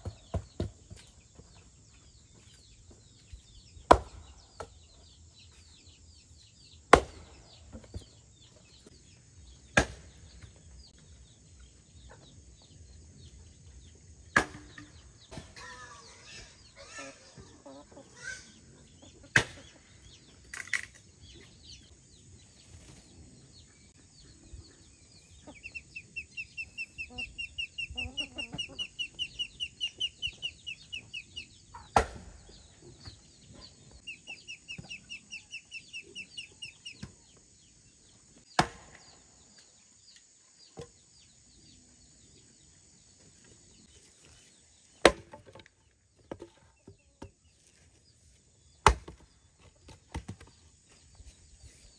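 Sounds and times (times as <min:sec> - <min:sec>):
sharp chopping blows: 0:03.9 - 0:04.3, 0:06.9 - 0:07.4, 0:09.7 - 0:10.2, 0:31.9 - 0:32.4, 0:38.5 - 0:39.1.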